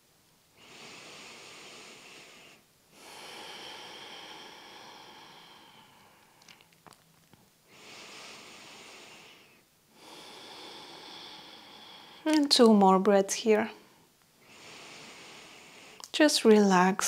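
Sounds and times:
woman breathing deeply: 0.5s - 6.8s, 7.6s - 12.5s, 13.7s - 16.2s
faint clicks: 16.0s - 16.2s.

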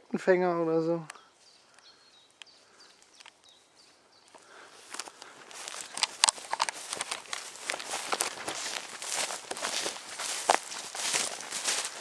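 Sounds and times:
footsteps through tall grass: 1.3s - 12.0s.

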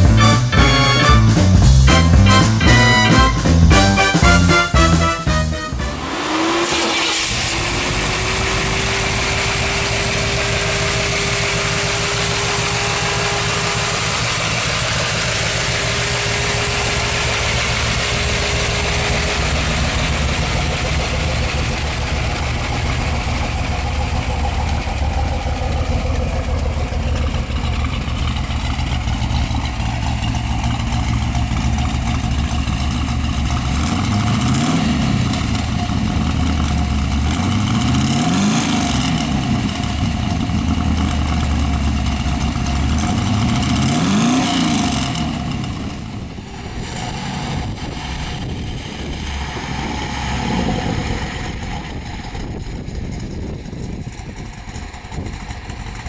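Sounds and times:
steady whine: 0.0s - 34.5s
car engine idling: 0.0s - 56.0s.

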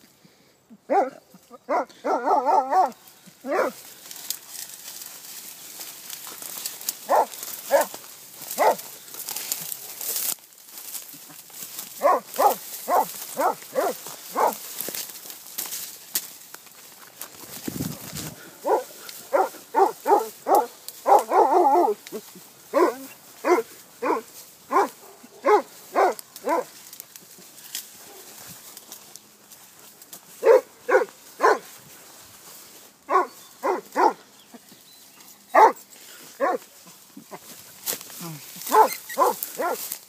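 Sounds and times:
hounds baying: 0.8s - 3.9s, 6.4s - 9.6s, 11.1s - 15.0s, 18.3s - 26.8s, 29.6s - 31.9s, 33.0s - 40.0s.

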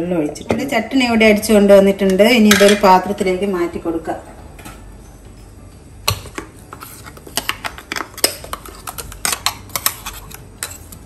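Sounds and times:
metal spoon scraping steel jar: 8.5s - 11.0s.

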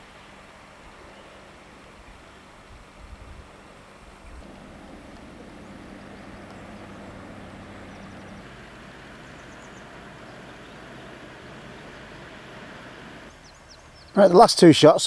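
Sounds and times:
faint low drone: 4.4s - 13.3s.

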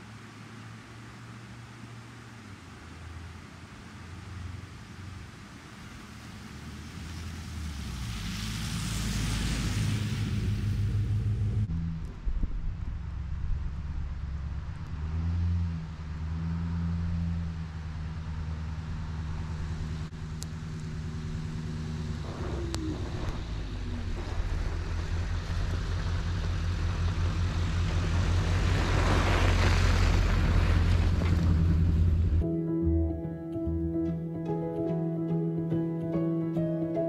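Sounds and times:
pickup truck engine passing: 2.9s - 32.4s
tyres on snow: 4.8s - 11.7s, 17.6s - 32.4s.

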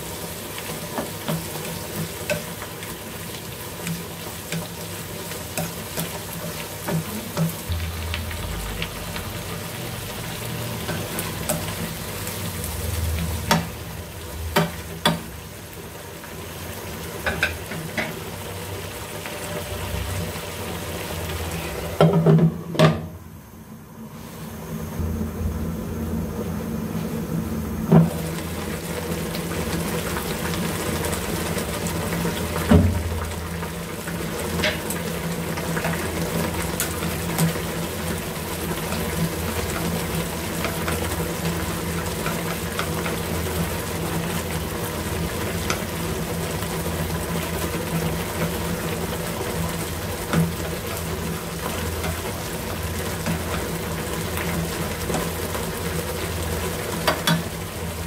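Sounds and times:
soup bubbling in a pan: 0.0s - 22.4s, 28.0s - 58.0s
low steady hum: 7.1s - 15.7s, 19.7s - 30.2s.

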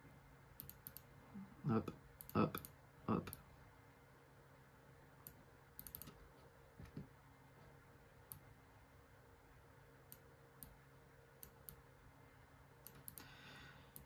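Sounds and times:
computer mouse clicking: 0.6s - 1.1s, 5.2s - 7.0s, 11.4s - 11.8s, 12.8s - 13.3s.

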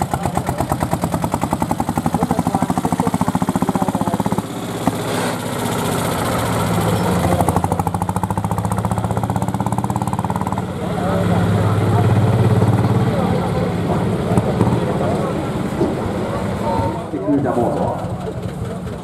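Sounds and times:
engine knock: 0.0s - 16.6s, 17.5s - 19.0s
diesel engine chugging under load: 0.0s - 19.0s.

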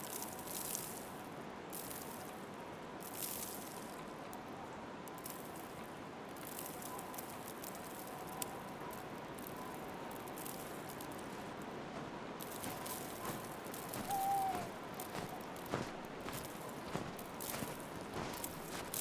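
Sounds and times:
outdoor ambience hiss: 0.0s - 19.0s
footsteps crunching in snow: 10.1s - 19.0s.

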